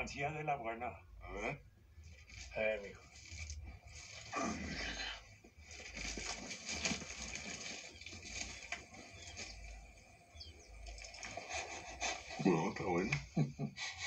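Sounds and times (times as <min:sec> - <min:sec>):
package rustling and scraping: 0:05.6 - 0:10.0
faint bird chirps: 0:05.9 - 0:13.7.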